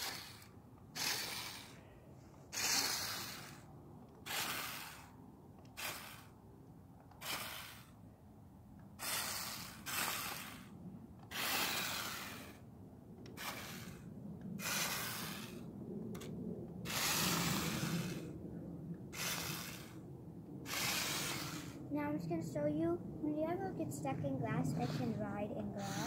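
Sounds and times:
toy truck electric motor: 0:00.0 - 0:01.8, 0:02.5 - 0:06.4, 0:07.1 - 0:08.0, 0:09.0 - 0:18.3, 0:19.1 - 0:20.0, 0:20.7 - 0:21.8, 0:24.7 - 0:25.2, 0:25.8 - 0:26.0.

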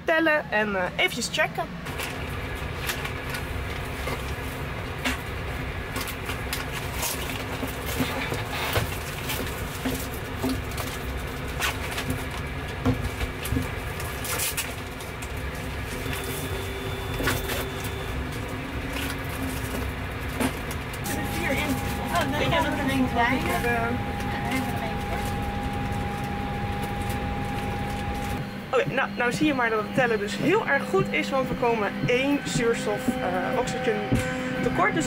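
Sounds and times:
airliner cabin rumble and hum: 0:01.7 - 0:35.0.

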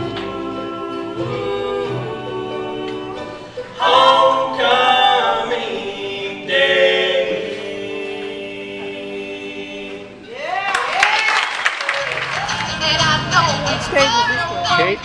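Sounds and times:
banjo: 0:00.0 - 0:05.1
harmony singing: 0:00.0 - 0:10.6, 0:12.2 - 0:15.0
guitar: 0:12.0 - 0:15.0.

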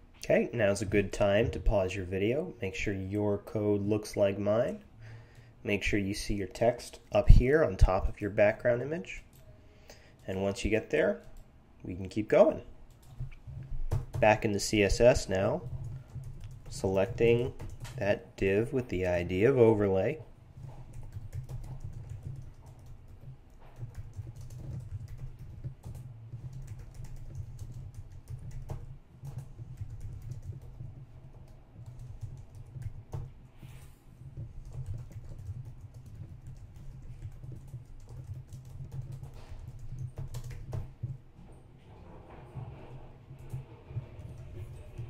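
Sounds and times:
steady low hum: 0:00.0 - 0:45.0
computer keyboard typing: 0:12.9 - 0:41.2, 0:43.3 - 0:45.0.

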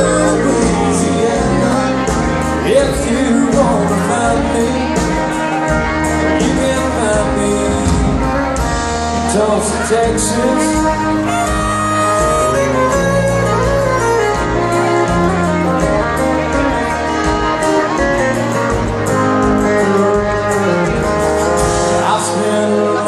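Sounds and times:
live country band playing: 0:00.0 - 0:23.0.

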